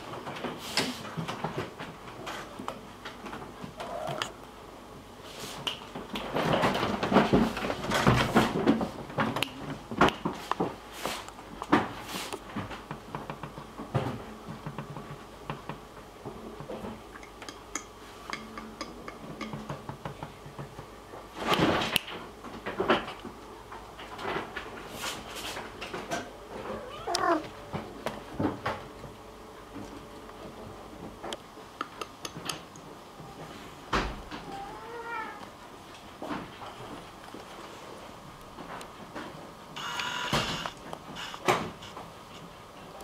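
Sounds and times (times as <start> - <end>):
faint steady hum: 0.0 - 43.0
knocks and clicks: 16.6 - 20.9.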